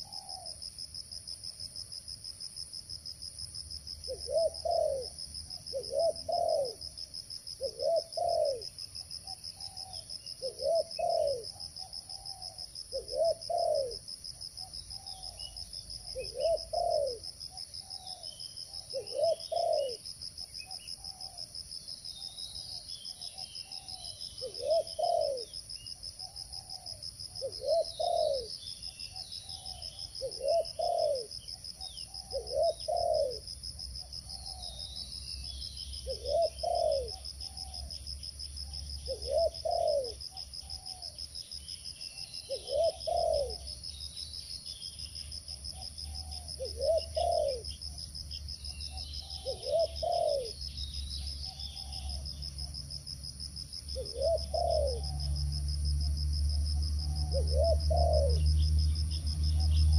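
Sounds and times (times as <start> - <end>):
dove cooing: 0.0 - 0.6, 4.1 - 6.9, 7.6 - 14.0, 16.0 - 20.0, 21.0 - 21.4, 23.7 - 25.5, 26.2 - 33.5, 36.0 - 37.9, 38.6 - 41.2, 42.5 - 43.8, 45.7 - 48.0, 48.9 - 50.6, 51.3 - 52.4, 54.0 - 55.4, 56.8 - 58.7
high-pitched insect drone: 27.5 - 59.9.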